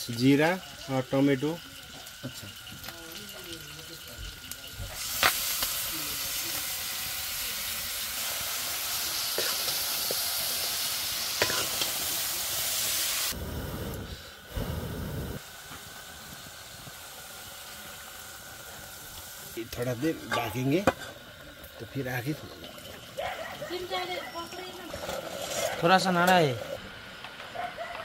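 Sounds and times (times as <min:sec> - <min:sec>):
food sizzling in hot oil: 0:00.0 - 0:27.0.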